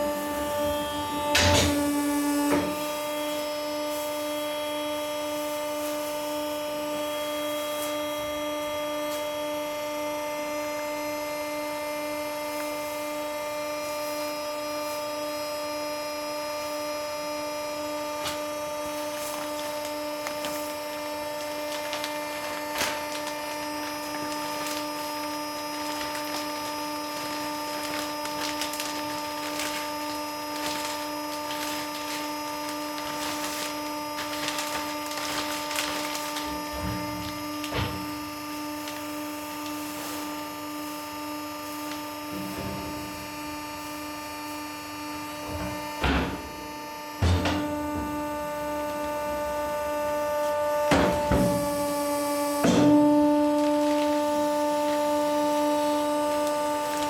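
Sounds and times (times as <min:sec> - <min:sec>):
electric motor humming: 0:17.3 - 0:57.0
straw and plastic bag rustling: 0:17.6 - 0:40.7, 0:45.3 - 0:57.0.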